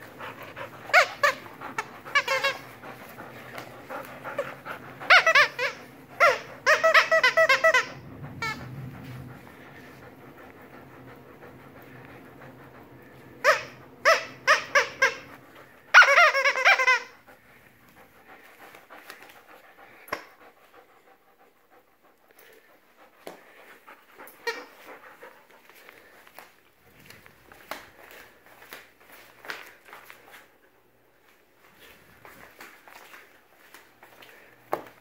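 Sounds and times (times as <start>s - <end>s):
dog yelping: 0.2s - 3.0s, 4.0s - 8.7s, 15.9s - 17.2s.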